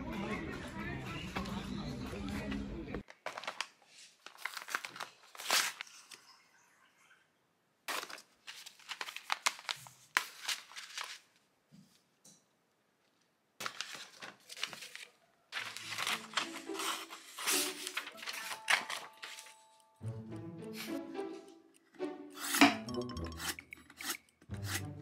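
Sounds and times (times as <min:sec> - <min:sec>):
paper tearing and crinkling: 0:03.2 - 0:06.2, 0:07.9 - 0:11.3, 0:13.6 - 0:19.6.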